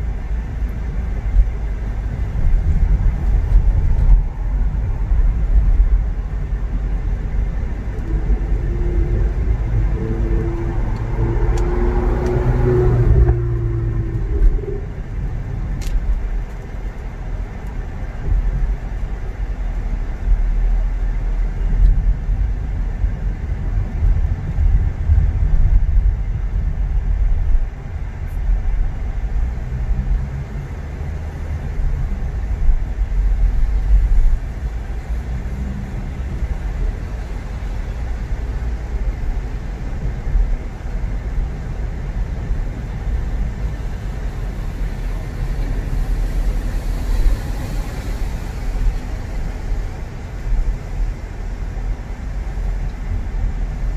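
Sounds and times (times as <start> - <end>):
car engine and road noise: 0.0 - 53.9.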